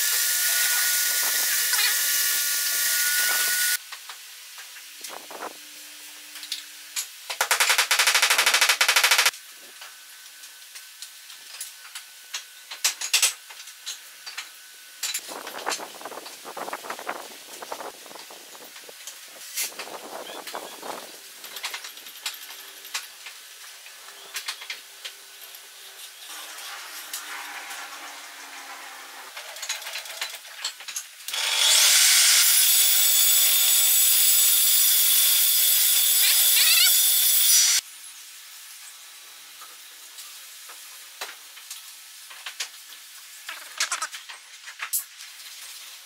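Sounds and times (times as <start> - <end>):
table saw whining: 0.0 - 3.8, 26.3 - 29.4, 31.3 - 37.8.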